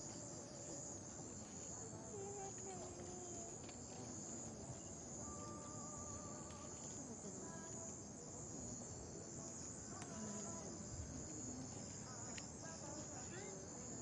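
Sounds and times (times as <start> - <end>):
night insects chirring: 0.0 - 14.0.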